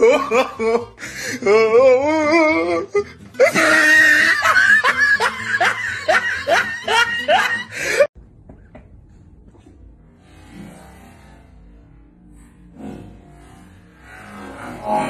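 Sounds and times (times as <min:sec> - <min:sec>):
person laughing hard: 0:00.0 - 0:08.1.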